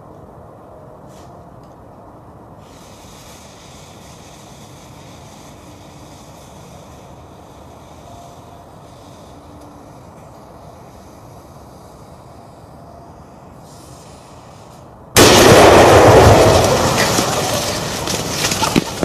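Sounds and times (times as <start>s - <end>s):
firecracker explosion: 15.2s - 19.0s.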